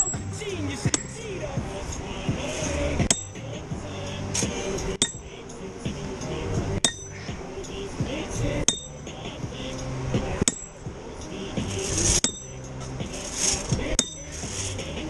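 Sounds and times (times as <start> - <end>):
maul striking steel spike: 0.9 - 1.2, 3.0 - 3.4, 4.4 - 5.3, 6.8 - 7.2, 8.7 - 9.0, 10.4 - 10.8, 11.9 - 12.6, 13.4 - 14.7.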